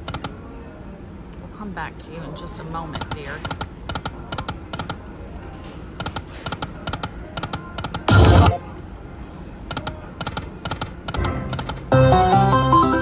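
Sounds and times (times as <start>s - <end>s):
slot machine reels clicking: 8.0s - 8.6s
loud electronic sound effect: 8.1s - 8.6s.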